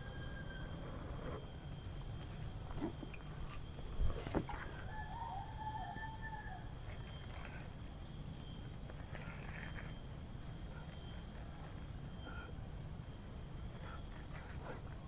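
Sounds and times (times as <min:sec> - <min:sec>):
insects droning: 0:00.0 - 0:15.0
crackles and rustles of tinder: 0:06.3 - 0:15.0.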